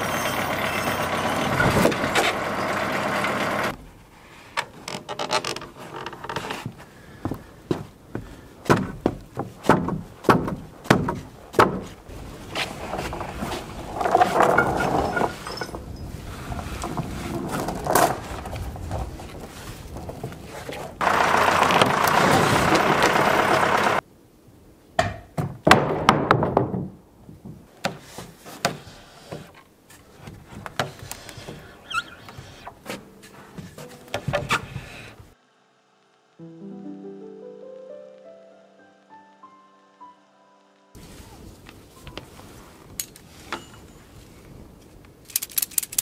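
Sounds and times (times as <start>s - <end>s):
footsteps on wooden planks: 4.8s - 14.8s, 26.6s - 35.2s
wooden knocks and thuds: 7.7s - 12.0s, 25.0s - 29.6s, 33.6s - 35.1s.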